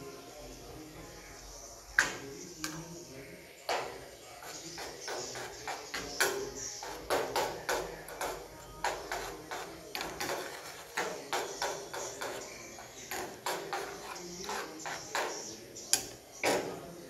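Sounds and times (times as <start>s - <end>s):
metal spoon scraping ceramic plate: 4.4s - 7.4s, 8.2s - 16.1s.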